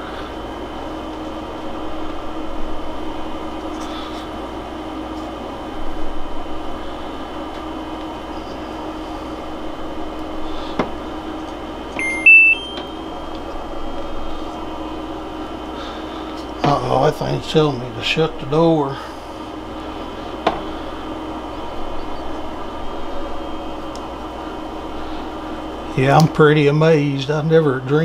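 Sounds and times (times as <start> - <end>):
steady hum: 0.0 - 28.0
high-pitched electronic alarm beep: 12.0 - 13.0.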